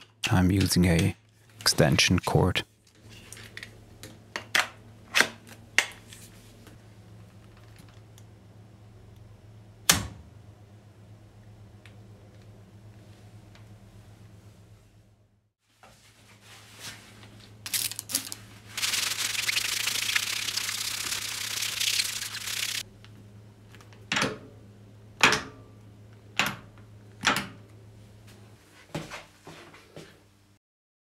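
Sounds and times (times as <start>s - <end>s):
milling machine electric hum: 18.8s - 22.8s.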